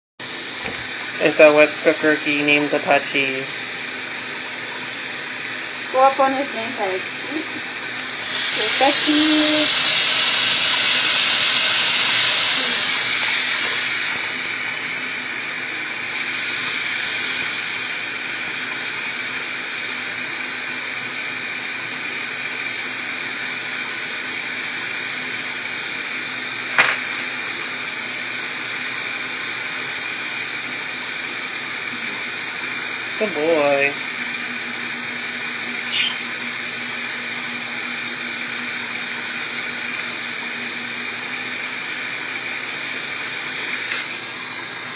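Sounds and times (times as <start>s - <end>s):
sharp knock: 26.7s - 27.1s.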